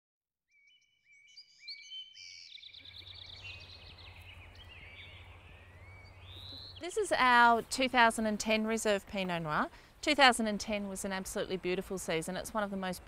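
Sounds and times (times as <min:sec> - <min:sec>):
birds chirping: 0:00.6 - 0:13.0.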